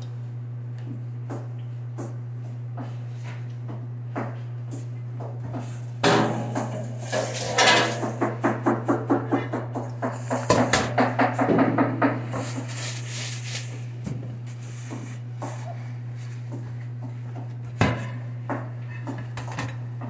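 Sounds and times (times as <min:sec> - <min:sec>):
steady low hum: 0:00.0 - 0:20.0
utensil clinking in metal bowl: 0:06.0 - 0:08.2.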